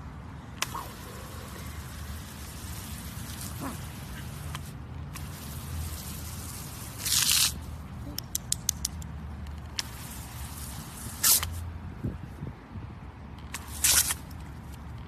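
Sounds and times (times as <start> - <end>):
hose nozzle spraying water: 0.6 - 7.8, 9.4 - 11.7, 13.5 - 14.4
sharp clicks: 8.1 - 9.9.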